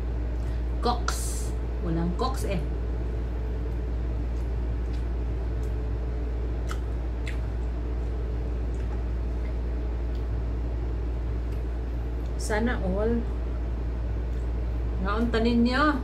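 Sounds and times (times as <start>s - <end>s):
steady low hum: 0.0s - 16.0s
wet chewing and lip-smacking: 3.6s - 5.9s, 6.5s - 10.4s.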